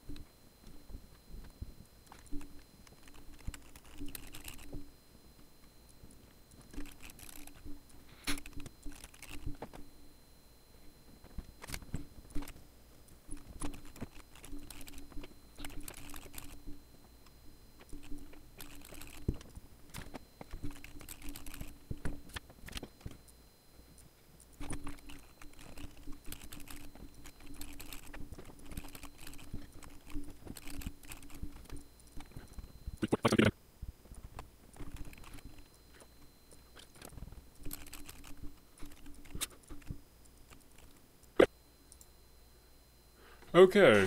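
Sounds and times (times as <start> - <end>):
typing on computer keyboard: 2.1 - 4.8, 6.7 - 9.8, 13.3 - 16.8, 17.8 - 19.4, 20.0 - 23.2, 24.6 - 32.4, 36.8 - 39.9.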